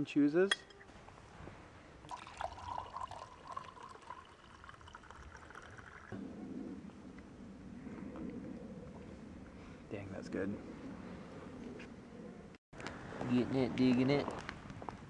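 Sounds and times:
water poured into plastic mug: 2.1s - 6.2s.

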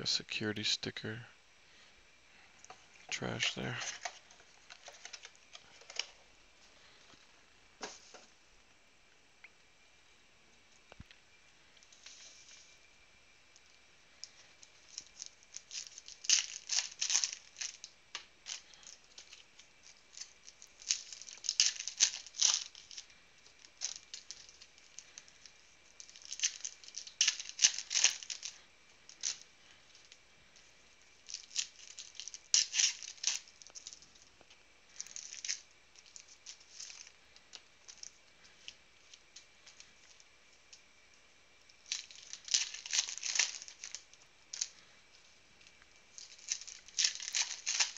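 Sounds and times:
foil wrappers tearing and crinkling: 3.1s - 6.2s, 14.2s - 30.3s, 30.9s - 40.8s, 41.7s - 44.9s, 45.6s - 47.9s.

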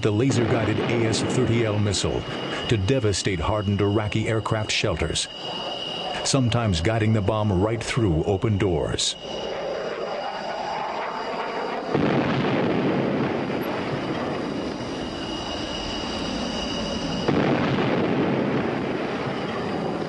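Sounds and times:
jet engine rush with high whine: 0.0s - 20.0s.

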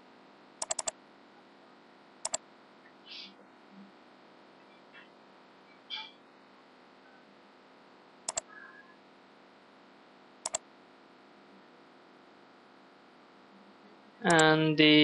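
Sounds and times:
computer mouse double clicks: 0.6s - 0.9s.

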